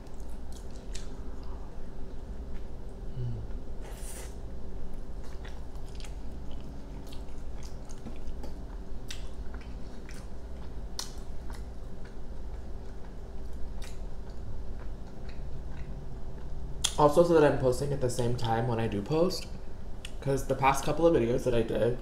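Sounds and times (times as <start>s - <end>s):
chewing with wet mouth clicks: 0.0s - 1.6s, 4.9s - 17.0s
faint steady hum: 0.0s - 22.0s.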